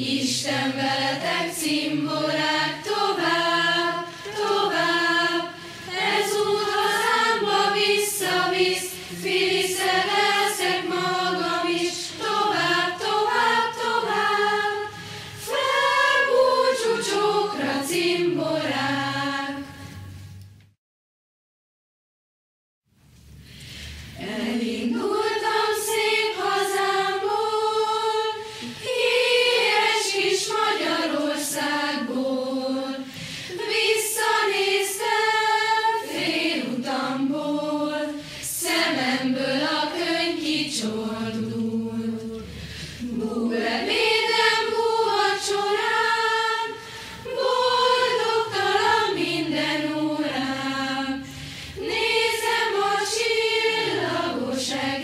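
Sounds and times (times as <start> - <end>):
choir singing: 0.0 - 20.0, 24.2 - 55.0
breaths between phrases: 51.2 - 51.8.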